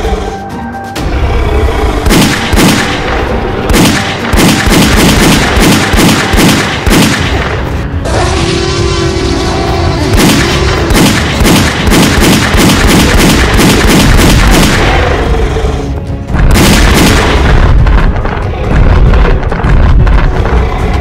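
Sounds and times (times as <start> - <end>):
music: 0.0 - 21.0
rifle gunshots: 2.1 - 7.7, 10.1 - 15.1, 16.4 - 17.8.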